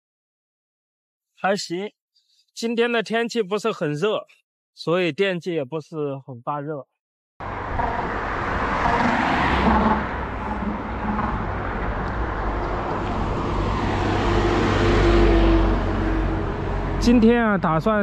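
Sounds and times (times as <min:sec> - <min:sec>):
truck engine rumble: 0:07.4 - 0:17.8
highway traffic passing: 0:07.4 - 0:18.0.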